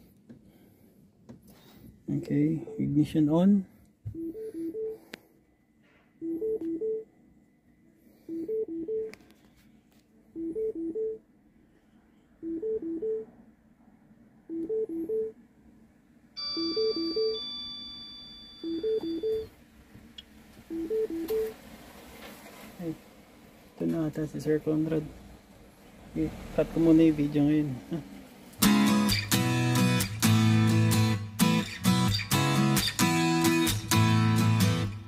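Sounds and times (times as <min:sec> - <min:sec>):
car warning chime: 0:16.4 - 0:19.5, 0:20.7 - 0:21.6.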